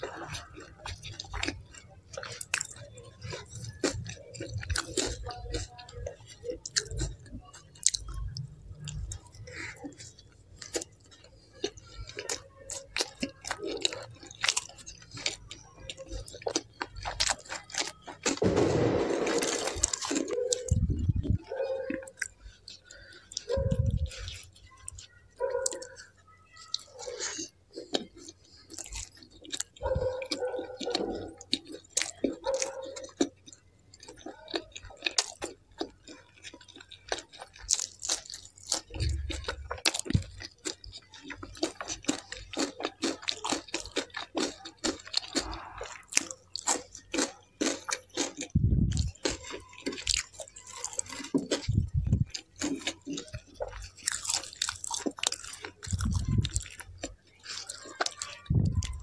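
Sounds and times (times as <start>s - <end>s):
close chewing mouth sounds: 0.0s - 59.0s
dull low thumps: 48.6s - 49.0s, 51.7s - 52.3s.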